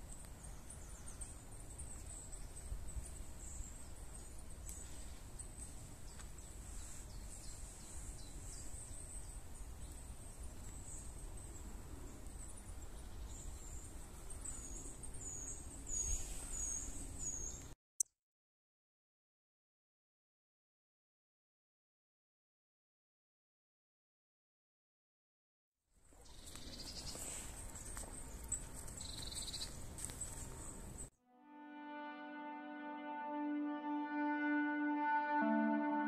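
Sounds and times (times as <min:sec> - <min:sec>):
songbirds chirping: 0:00.0 - 0:17.8, 0:26.0 - 0:31.1.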